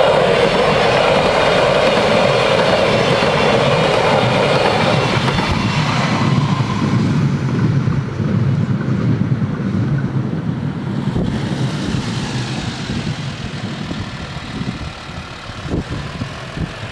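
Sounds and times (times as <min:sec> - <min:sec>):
diesel railcar: 0:00.0 - 0:16.9
low rumble: 0:04.1 - 0:16.9.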